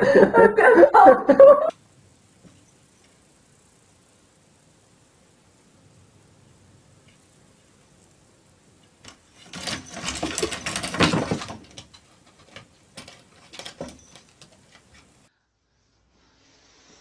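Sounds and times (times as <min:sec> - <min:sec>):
cat claws scrabbling on wood: 0:09.0 - 0:15.2.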